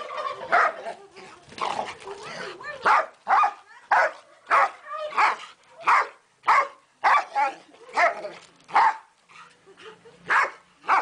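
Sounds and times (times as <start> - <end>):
large dog barking: 2.0 - 9.1, 10.3 - 11.0.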